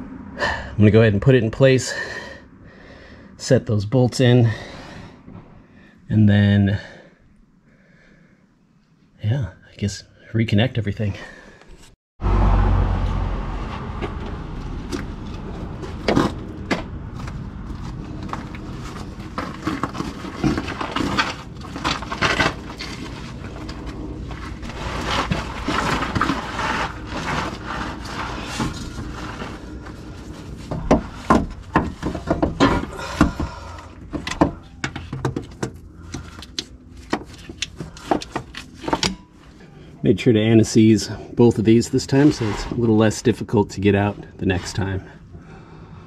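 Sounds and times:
hand tools clicking and knocking: 0:30.7 - 0:39.3.

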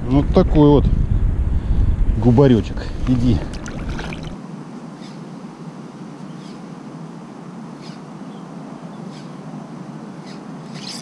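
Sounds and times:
flowing river water: 0:03.0 - 0:04.4.

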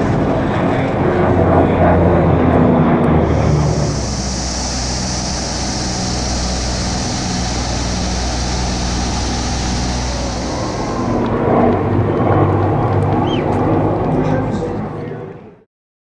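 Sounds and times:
aircraft engines droning: 0:00.0 - 0:15.5
rush of air: 0:03.2 - 0:11.7.

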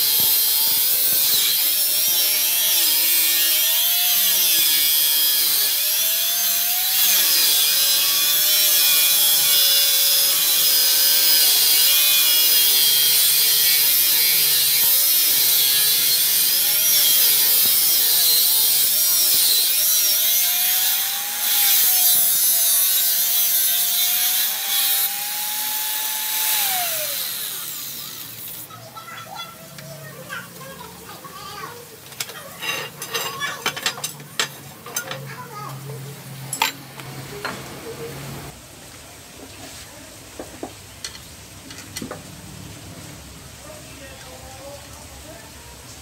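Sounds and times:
angle grinder cutting steel: 0:00.0 - 0:28.7.

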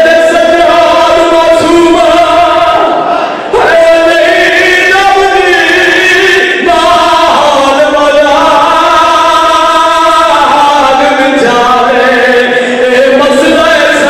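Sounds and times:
man chanting melodically: 0:00.0 - 0:14.0.

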